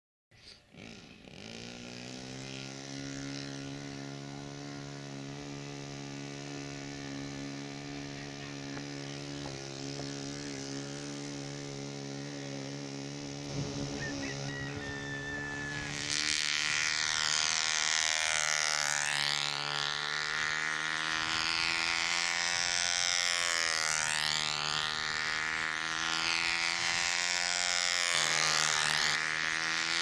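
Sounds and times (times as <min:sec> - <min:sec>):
model plane engine running: 0:00.4 - 0:30.0.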